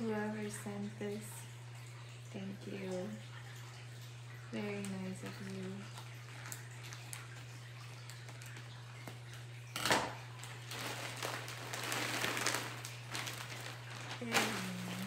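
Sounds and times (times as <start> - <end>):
plastic wrapping crinkling: 5.2 - 15.0
plastic tearing: 9.8 - 15.0.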